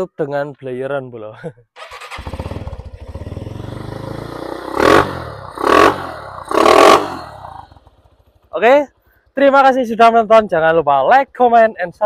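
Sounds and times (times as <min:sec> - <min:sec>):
motorcycle engine idling: 0:01.8 - 0:12.0.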